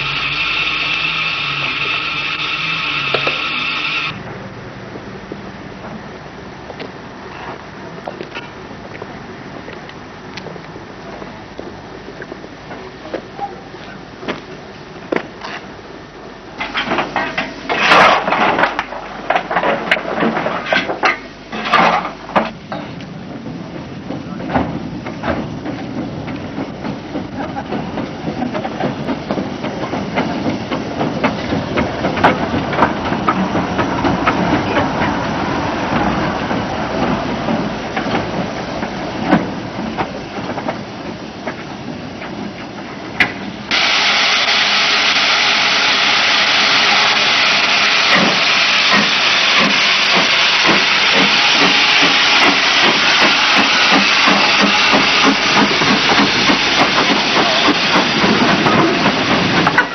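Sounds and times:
steam hissing: 0.0 - 4.3, 25.1 - 59.9
steam locomotive exhaust beats: 0.0 - 17.8, 21.0 - 59.9
clanks and knocks from motion: 16.6 - 23.0, 24.0 - 35.2.

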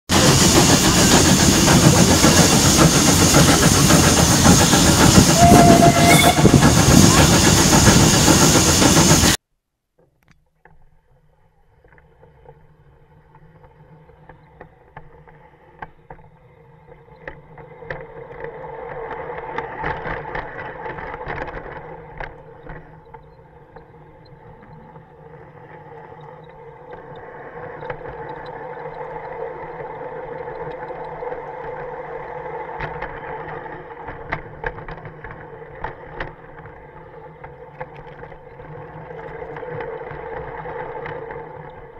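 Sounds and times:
model locomotive motor whining: 0.2 - 9.4
wheels clicking over track: 11.8 - 41.9.

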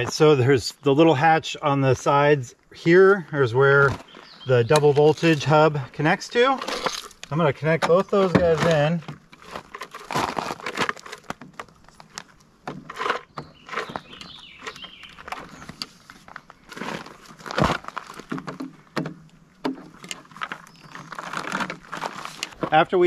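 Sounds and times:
cables being handled: 6.4 - 18.8, 19.8 - 22.8.

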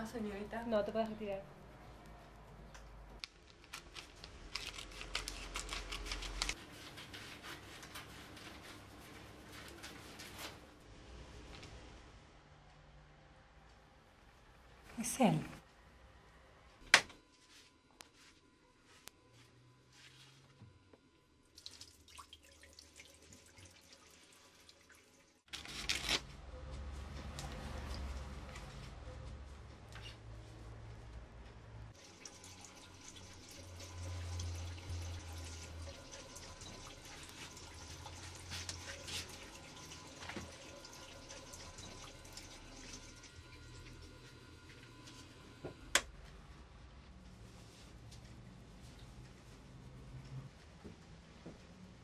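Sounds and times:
scissors snipping newspaper: 3.2 - 6.6, 25.5 - 26.3.

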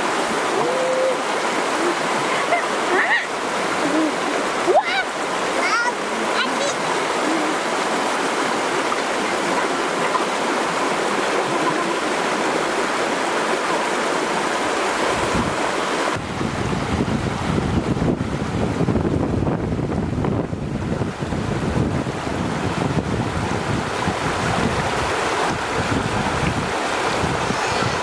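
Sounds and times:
stream rushing over stones: 0.0 - 28.0
wind buffeting microphone: 14.7 - 28.0.

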